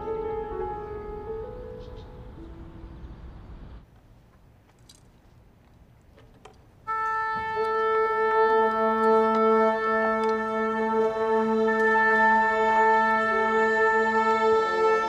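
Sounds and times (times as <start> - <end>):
orchestra sustained notes: 6.9 - 15.0.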